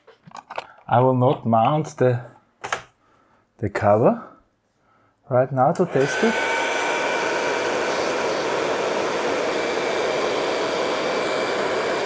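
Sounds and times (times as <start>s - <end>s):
air fryer fan whirring: 5.9s - 12.0s.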